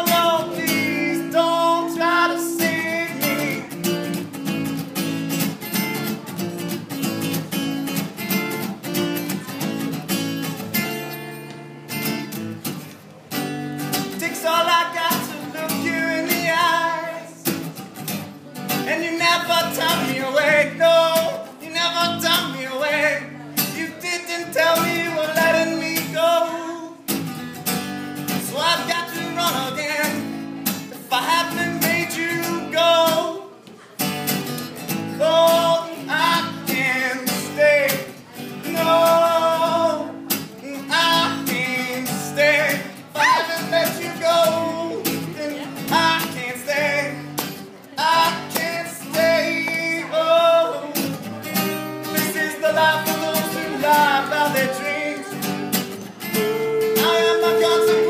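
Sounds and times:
person singing: 0.0s - 4.2s, 14.0s - 17.6s, 35.2s - 58.0s
strummed acoustic guitar: 0.0s - 58.0s.

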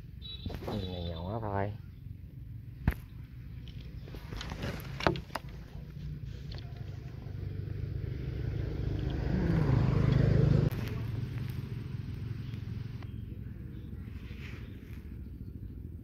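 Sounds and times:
small vehicle engine running: 3.7s - 16.0s.

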